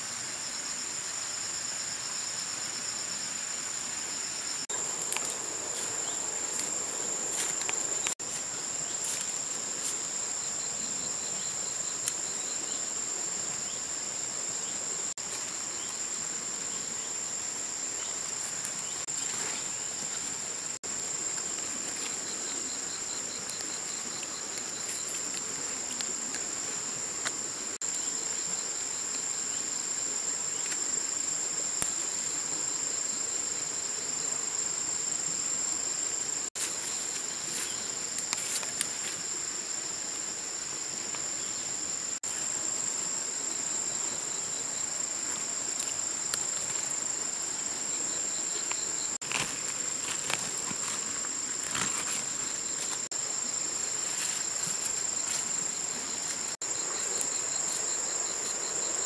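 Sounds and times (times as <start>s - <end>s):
insects trilling: 0.0s - 59.0s.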